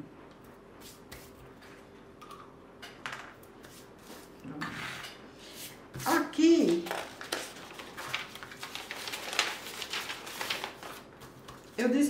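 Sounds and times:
paper rustling: 6.6 - 11.8.

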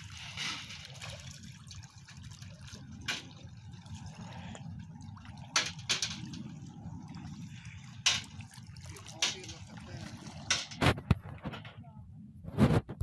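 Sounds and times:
water dripping from a sieve: 0.0 - 10.8
water lapping: 0.0 - 11.8.

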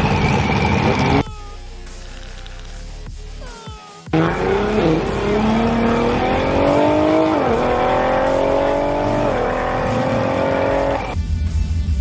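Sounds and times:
car engine accelerating: 4.1 - 11.2.

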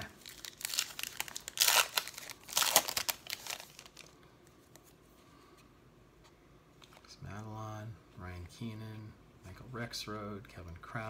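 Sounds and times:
foil wrapper tearing and crinkling: 0.0 - 4.2.

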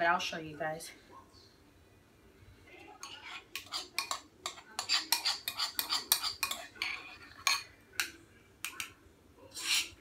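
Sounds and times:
spoon scraping a bowl: 2.8 - 8.2, 9.5 - 10.0.

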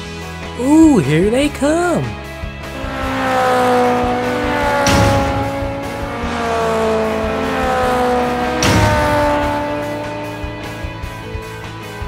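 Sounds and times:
race car engines passing by: 0.6 - 12.0
whoosh of cars speeding past: 2.6 - 11.6.

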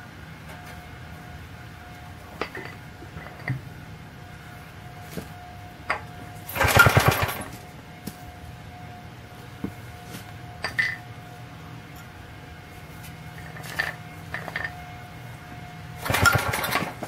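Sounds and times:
engine cranking chuffs: 6.5 - 7.6, 16.0 - 17.0.

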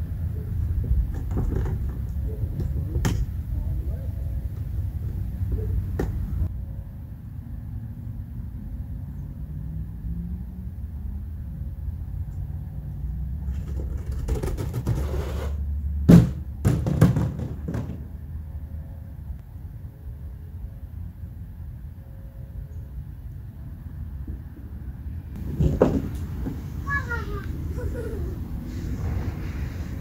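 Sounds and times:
rustling scraping noise: 13.4 - 15.6, 25.4 - 27.1, 28.6 - 30.0
loud knocks: 16.1 - 18.1
low rumble: 27.5 - 30.0.

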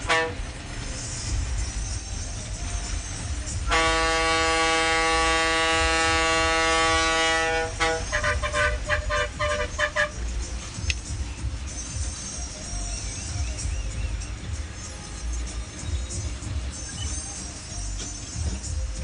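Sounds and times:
bus air horn: 0.0 - 0.6, 3.6 - 10.3
bus engine rumble: 0.0 - 19.0.

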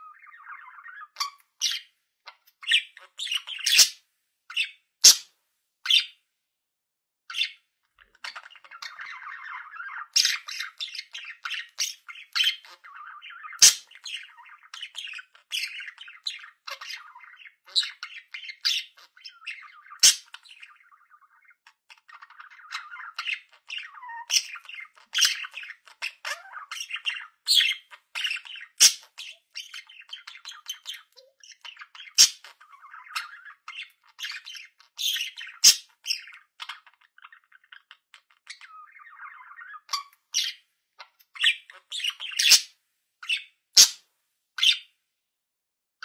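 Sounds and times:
budgerigar warbling and chattering: 0.0 - 5.3, 5.9 - 6.2, 7.3 - 44.0, 44.6 - 44.9
sharp bird squawks: 5.0 - 5.3, 13.6 - 13.9.

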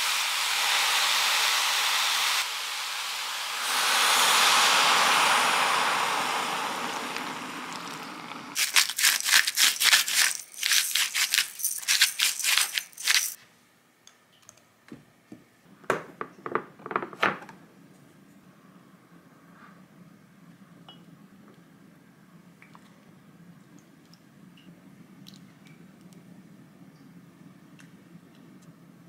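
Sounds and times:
liquid pouring and splashing: 8.6 - 13.4
rapid rattling clatter: 8.6 - 13.4.

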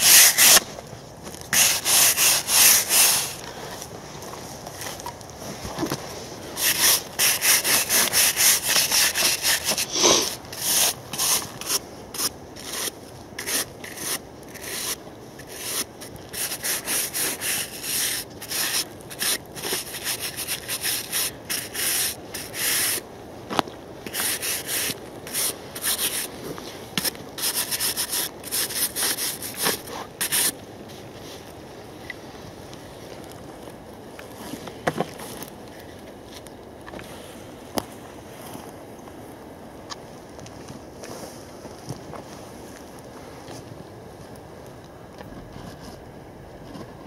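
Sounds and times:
hand scraping soil off metal: 0.0 - 23.0, 24.0 - 30.6.

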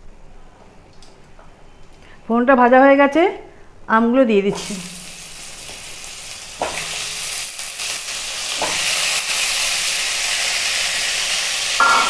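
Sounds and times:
food sizzling in hot oil: 4.5 - 12.0.

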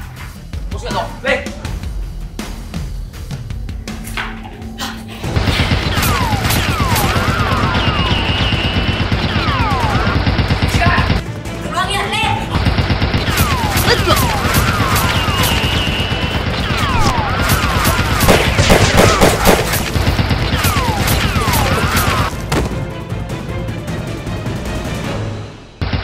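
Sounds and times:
background music: 0.0 - 26.0
rapid gunfire effects: 5.2 - 11.2, 12.5 - 22.3.

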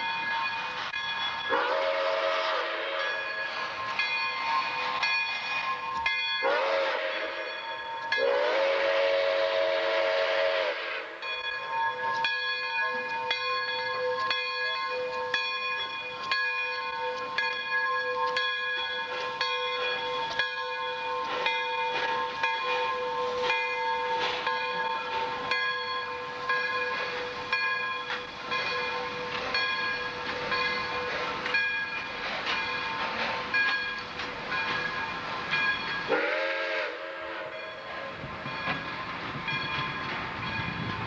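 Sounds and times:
steam hissing: 0.0 - 12.2, 15.2 - 41.0
locomotive rolling past: 0.0 - 41.0
steam whistle blasts: 1.5 - 3.4, 6.4 - 11.2, 36.1 - 37.6
bell ringing: 3.0 - 6.5, 11.2 - 36.2, 37.5 - 41.0.

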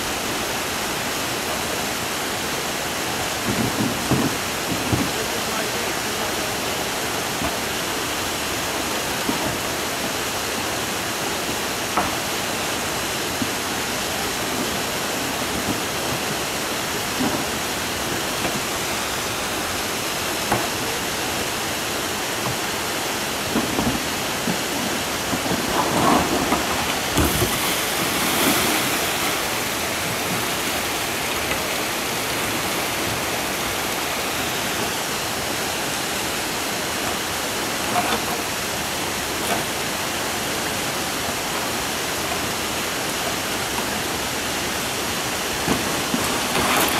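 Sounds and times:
river rushing over rocks: 0.0 - 46.9
water splashing: 12.0 - 40.5.

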